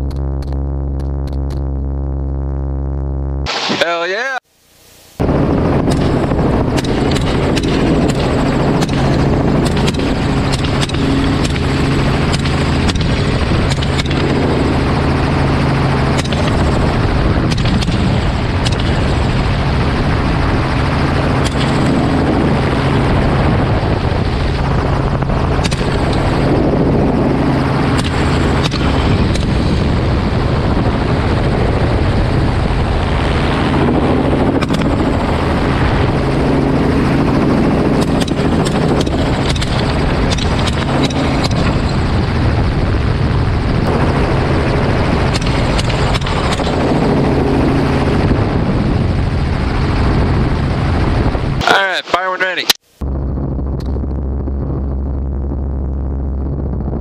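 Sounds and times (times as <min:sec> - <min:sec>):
short sharp sounds: 0:03.5 - 0:04.4
helicopter rotor and engine: 0:05.2 - 0:56.5.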